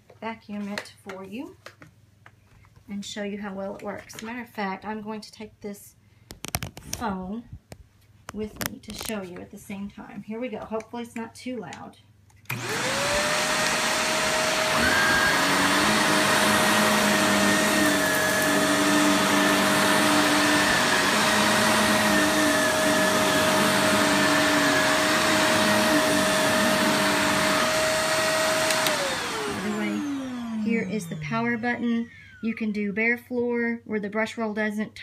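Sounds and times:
vacuum cleaner motor whine: 0:12.5 - 0:32.6.

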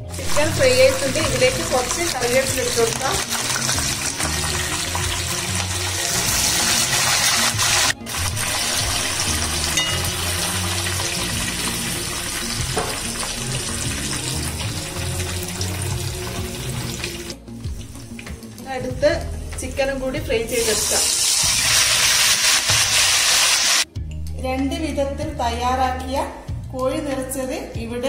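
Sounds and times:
hot oil sizzling: 0:00.0 - 0:18.7, 0:20.5 - 0:23.9.

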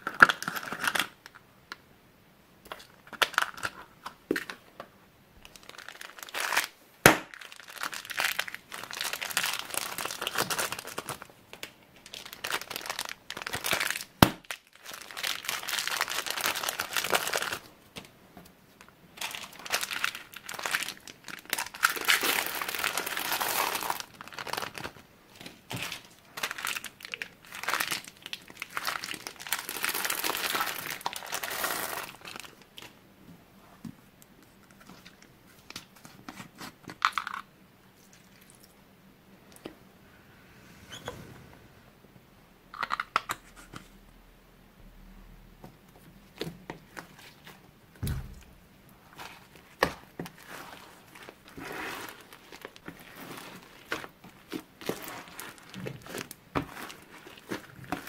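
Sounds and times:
plastic packaging crinkling: 0:05.4 - 0:17.7, 0:18.8 - 0:33.0, 0:48.4 - 0:58.0.

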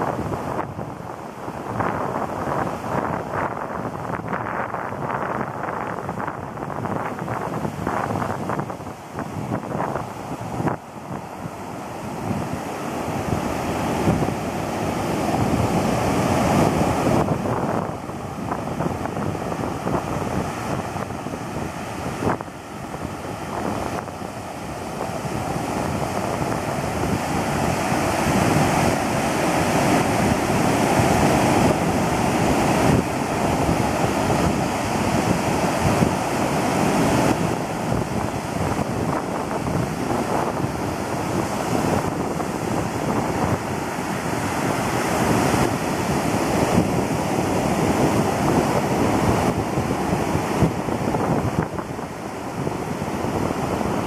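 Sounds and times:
ocean surf breaking: 0:00.0 - 0:54.0
wind buffeting microphone: 0:00.0 - 0:54.0.

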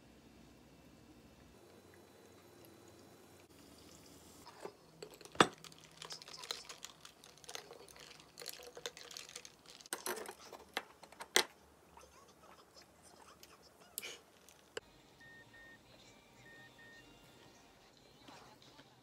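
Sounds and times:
faint fizz: 0:01.5 - 0:04.6, 0:05.5 - 0:09.9
ice cubes clinking against glass: 0:04.5 - 0:10.2
water poured over ice: 0:05.5 - 0:09.9.

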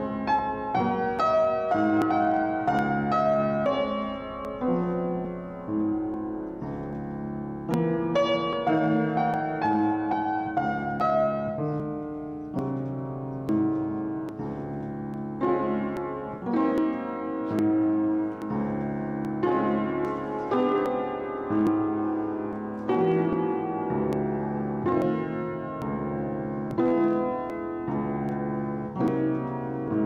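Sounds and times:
upright piano chords: 0:00.0 - 0:30.0.

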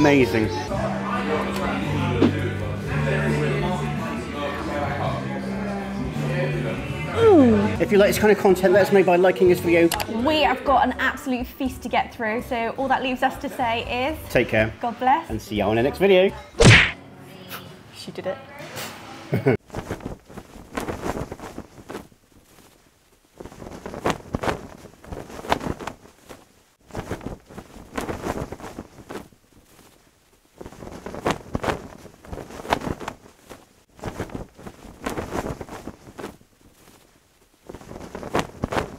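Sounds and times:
cloth flag flapping: 0:19.6 - 0:38.9.

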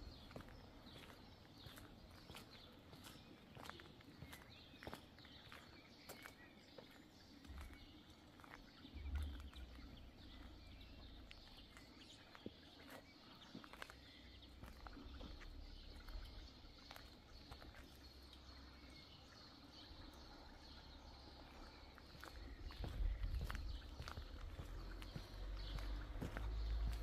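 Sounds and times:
faint low rumble: 0:08.9 - 0:12.0.

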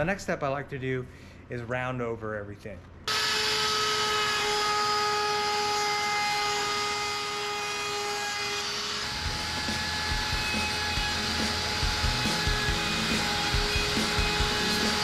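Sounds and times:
router bit cutting wood: 0:03.1 - 0:15.0
wood router whine: 0:03.1 - 0:15.0.

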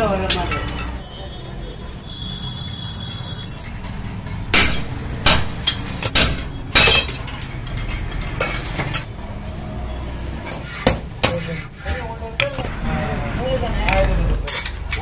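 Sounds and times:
sharp metal clinks and knocks: 0:03.6 - 0:09.1.

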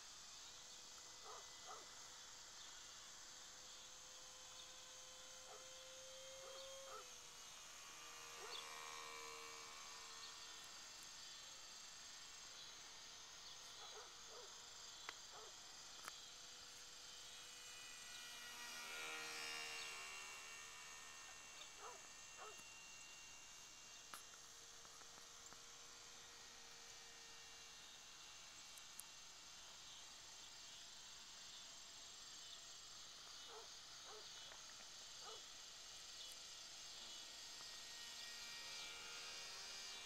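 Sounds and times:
model plane motor whine: 0:00.0 - 0:40.0.

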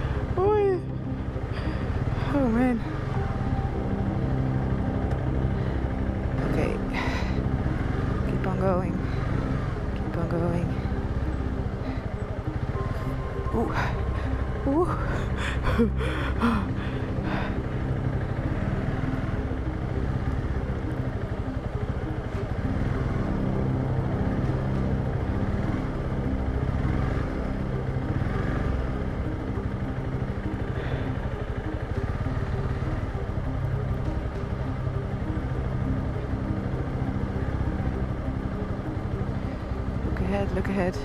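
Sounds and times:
motorcycle engine at low revs: 0:00.0 - 0:41.0.

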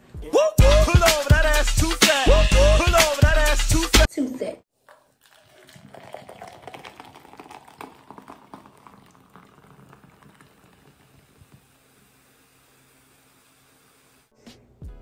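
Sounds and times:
fizzy drink pouring and fizzing: 0:04.8 - 0:14.0.

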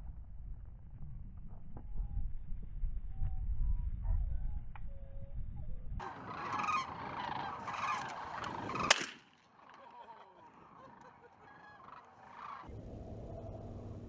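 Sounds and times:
flock of birds calling: 0:06.0 - 0:13.9
sharp crack: 0:07.7 - 0:10.0.

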